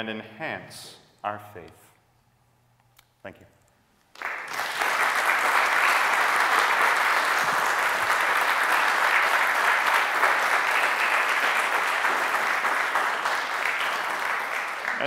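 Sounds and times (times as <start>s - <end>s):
audience applauding: 4.1s - 15.0s.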